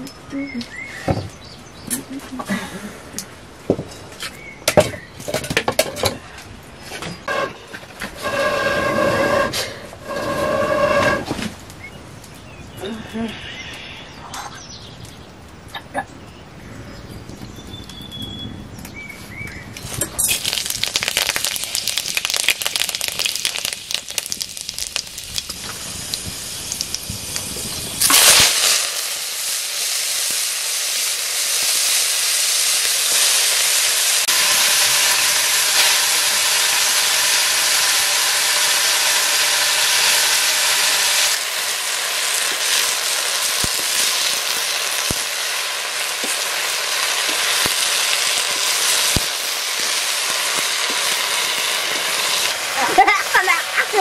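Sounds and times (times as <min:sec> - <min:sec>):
greens sizzling in oil: 0:07.2 - 0:12.7, 0:17.4 - 0:54.0
hot oil crackling in wok: 0:17.2 - 0:54.0
loud burst of frying: 0:20.1 - 0:54.0.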